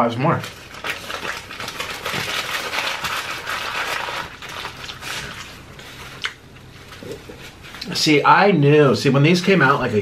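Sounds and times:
chewing crispy food: 0.4s - 7.9s.

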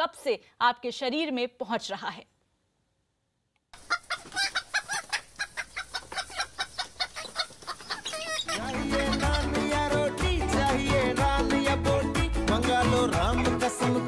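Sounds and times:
chickens clucking: 3.8s - 10.7s
music: 8.5s - 14.0s.

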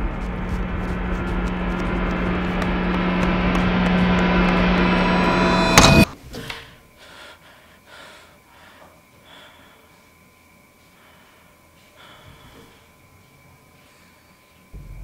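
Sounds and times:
person breathing heavily: 6.4s - 14.7s.

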